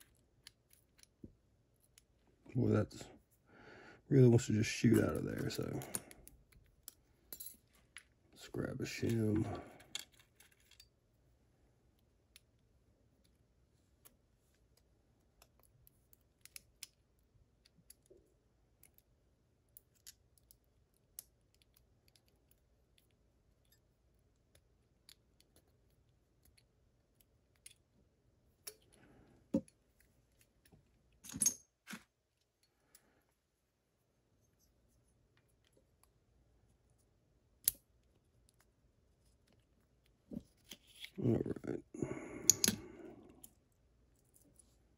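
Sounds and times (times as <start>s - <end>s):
small metal clicks and taps: 42.5s - 42.8s.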